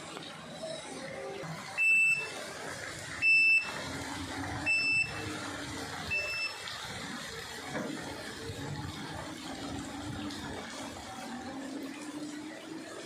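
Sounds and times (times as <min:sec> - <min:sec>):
high electronic beep: 0:01.8 - 0:02.3, 0:03.2 - 0:03.7, 0:04.7 - 0:05.2, 0:06.1 - 0:06.6.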